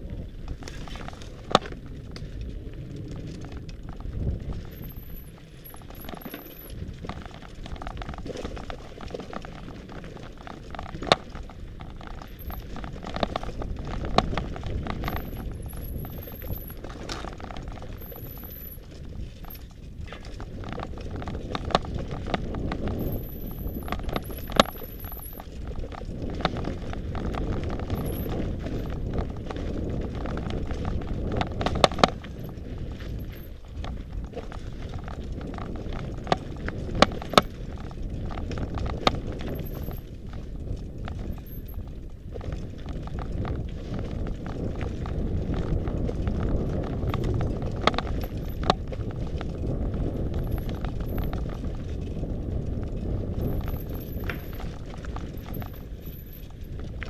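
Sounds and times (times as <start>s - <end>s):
bike rattling over bumps: 0.0s - 57.0s
bike tyres crunching over gravel: 0.0s - 57.0s.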